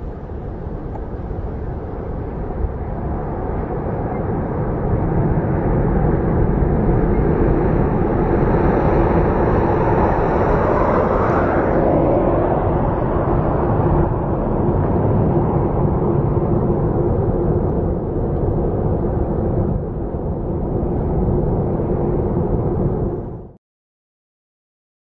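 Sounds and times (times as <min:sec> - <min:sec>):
faint high whine: 0:00.0 - 0:15.4
jet engines running loud: 0:00.0 - 0:23.5.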